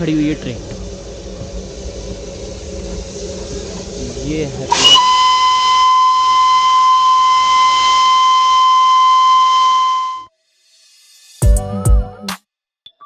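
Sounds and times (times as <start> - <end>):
steam hiss: 0.0 - 11.4
train whistle high note: 4.7 - 10.3.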